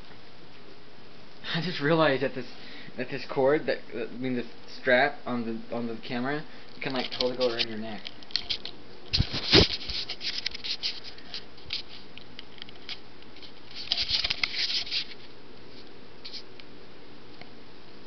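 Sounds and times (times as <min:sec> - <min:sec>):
camera handling rubbing and knocking: 0:08.3 - 0:15.2.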